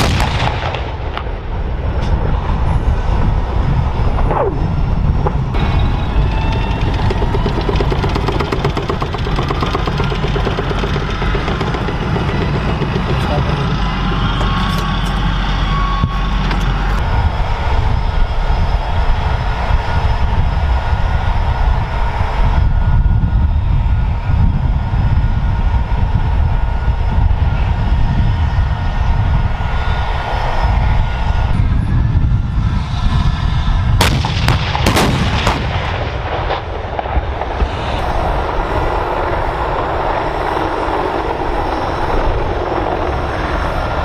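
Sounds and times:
sharp gunfire cracks: 0.0s - 1.4s, 34.0s - 38.0s
rumble of gunfire and explosions: 0.0s - 44.0s.

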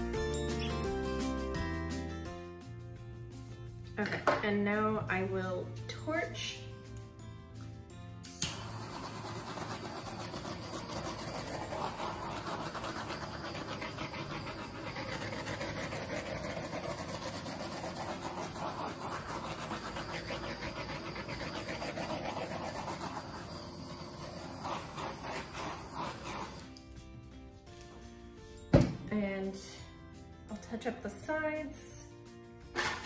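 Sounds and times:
torch flame hissing: 8.4s - 26.6s.

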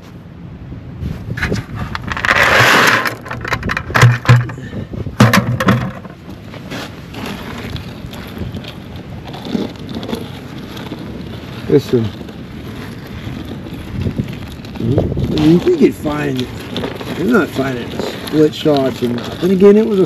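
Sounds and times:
stones clattering on metal: 1.5s - 6.5s
gravel pouring onto steel: 1.8s - 20.0s.

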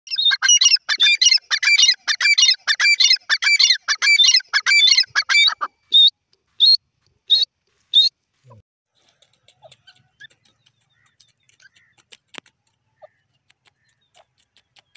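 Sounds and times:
bird high-pitched calls: 0.1s - 8.1s, 9.6s - 12.1s.

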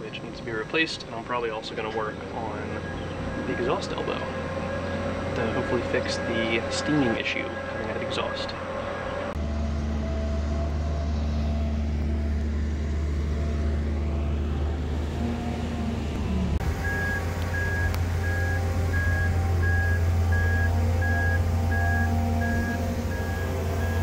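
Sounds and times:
engine humming: 0.0s - 24.0s
warning beeper beeping: 16.6s - 24.0s.

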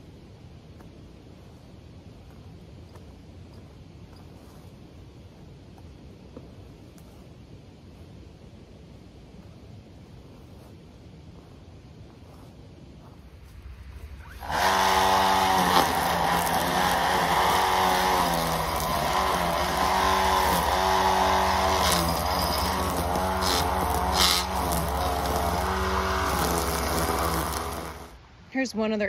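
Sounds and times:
power trimmer motor whining: 14.2s - 28.2s.

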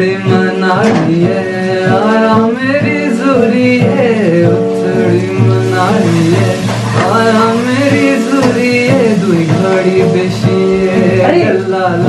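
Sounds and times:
acoustic guitar strumming: 0.0s - 12.0s
man singing: 0.0s - 12.0s.

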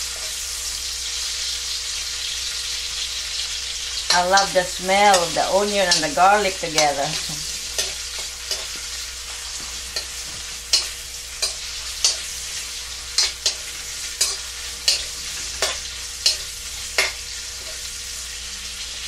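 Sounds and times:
onion and garlic sizzling in a wok: 0.0s - 19.0s
spatula scraping and clinking on pan: 6.8s - 17.9s.

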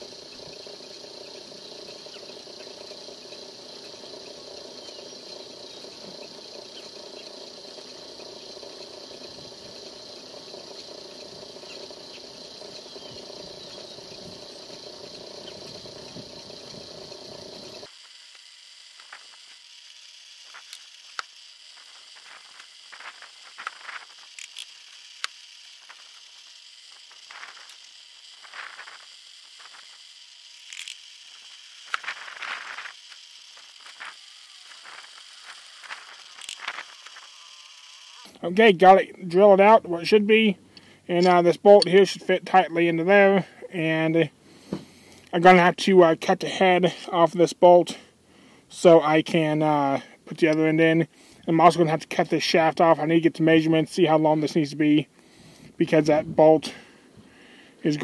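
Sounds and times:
drill press running: 0.0s - 45.3s.

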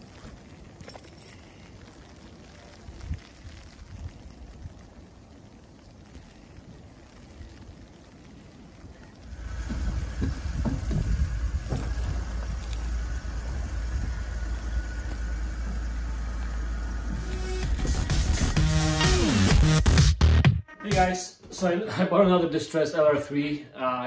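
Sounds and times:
car engine low rumble: 9.2s - 19.0s
ramp creaks: 9.2s - 19.8s.

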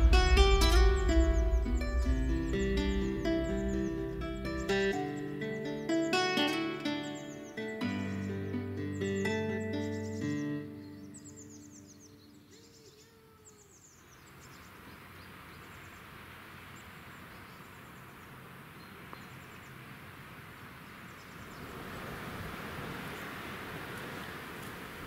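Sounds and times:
rushing background noise: 0.0s - 5.5s
small birds chirping: 0.0s - 22.1s.

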